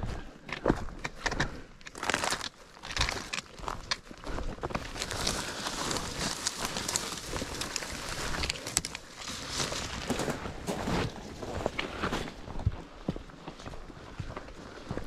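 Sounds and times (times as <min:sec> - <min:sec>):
footsteps crunching on dirt trail: 0:00.0 - 0:15.0
rustling and small crackles: 0:00.4 - 0:12.4.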